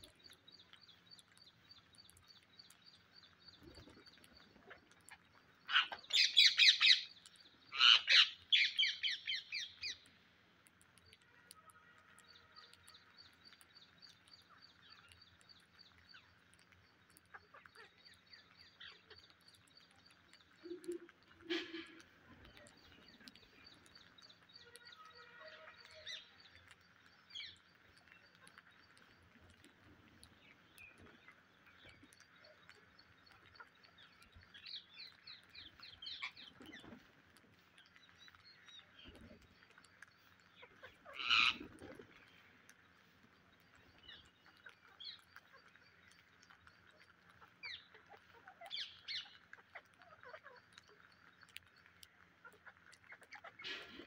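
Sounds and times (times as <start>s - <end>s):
parakeets chirping: 5.7s - 7.1s, 7.7s - 9.7s, 40.6s - 41.6s
parakeet squawks: 7.8s - 9.2s.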